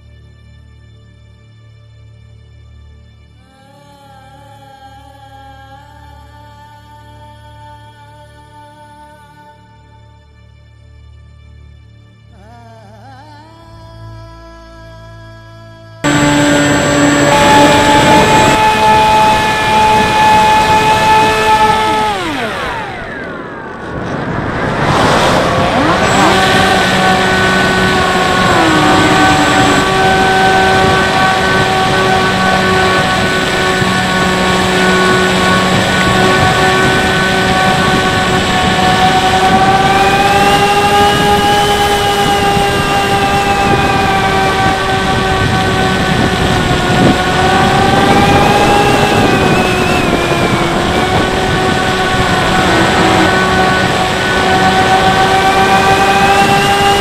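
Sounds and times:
electric motor and propeller whine: 0:16.0 - 0:57.0
wind noise: 0:16.0 - 0:57.0
rush of air: 0:22.0 - 0:28.2.

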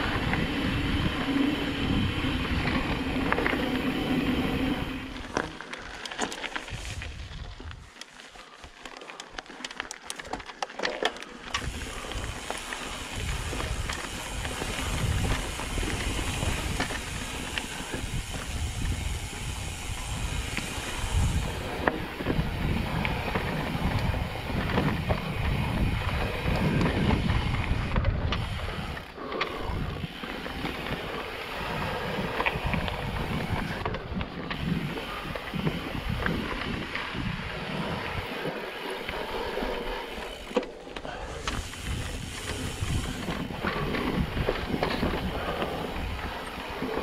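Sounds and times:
wind noise on microphone: 0:00.0 - 0:05.4, 0:06.7 - 0:07.9, 0:11.5 - 0:40.5, 0:41.1 - 0:47.0
bike rattling over bumps: 0:00.0 - 0:47.0
bike tyres rolling over stones: 0:00.0 - 0:47.0.

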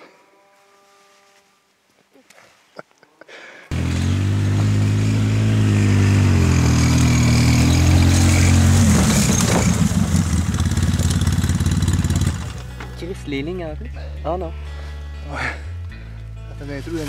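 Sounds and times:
quad engine running: 0:03.7 - 0:12.9.

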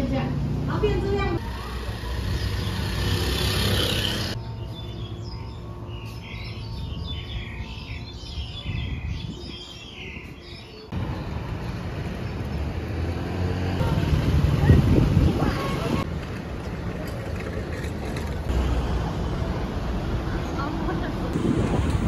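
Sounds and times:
street traffic: 0:00.0 - 0:22.0
small birds chirping: 0:01.4 - 0:12.8.

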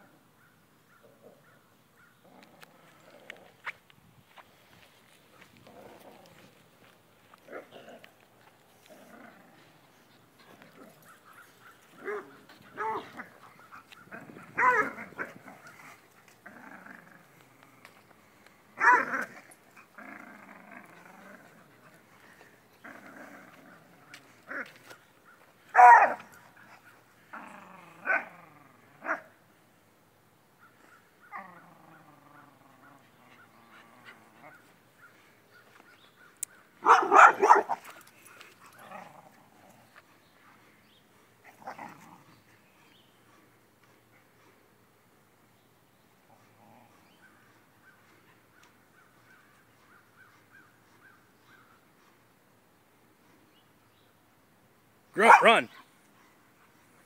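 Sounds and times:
dogs growling in play: 0:02.2 - 0:03.7, 0:05.3 - 0:25.1, 0:26.1 - 0:29.4, 0:31.3 - 0:35.3, 0:36.8 - 0:44.6, 0:46.1 - 0:48.4
dog barks: 0:10.8 - 0:15.4, 0:18.8 - 0:19.4, 0:25.7 - 0:26.5, 0:36.8 - 0:38.0, 0:55.2 - 0:55.8.

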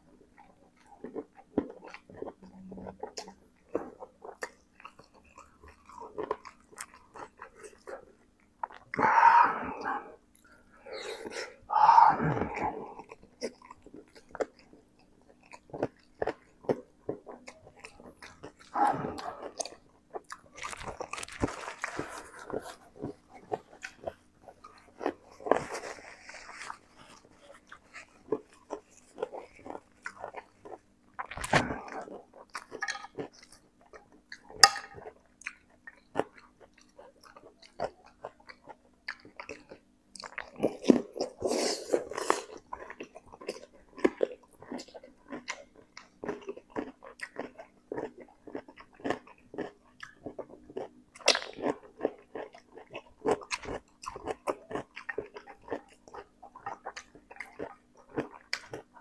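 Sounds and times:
chewing noodles: 0:00.0 - 0:59.0
wet mouth clicks and smacks: 0:51.2 - 0:51.6.

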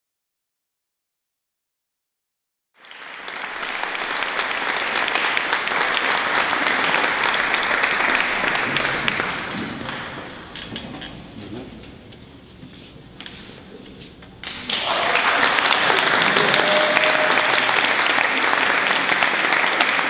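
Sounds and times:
audience applauding: 0:02.8 - 0:10.5, 0:14.4 - 0:20.0.

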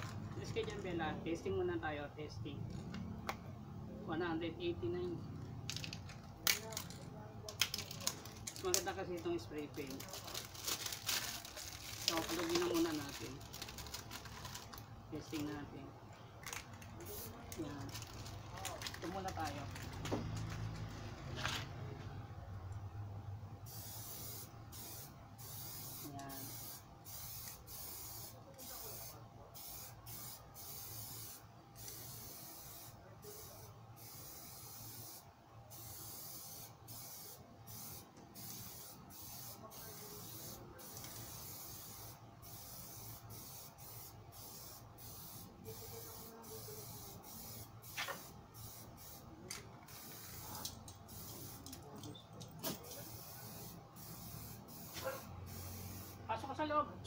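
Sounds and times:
paint spray hiss: 0:17.0 - 0:17.6, 0:23.7 - 0:56.3.

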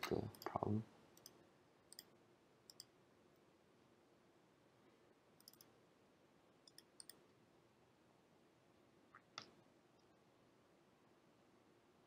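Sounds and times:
computer mouse clicks: 0:01.2 - 0:02.1, 0:02.7 - 0:02.9, 0:05.4 - 0:05.7, 0:06.6 - 0:07.3.

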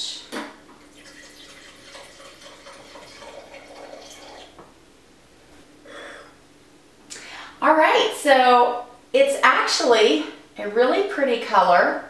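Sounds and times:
wine pouring into a glass: 0:00.8 - 0:04.6.

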